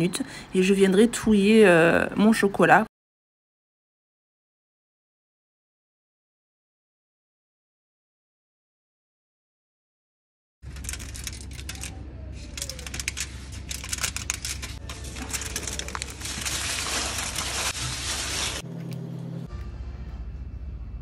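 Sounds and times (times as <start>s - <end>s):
foil and baking paper crinkling: 10.6s - 18.7s.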